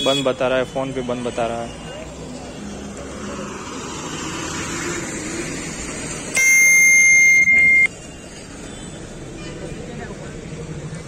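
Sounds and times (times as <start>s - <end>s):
bus engines and traffic: 0.0s - 11.0s.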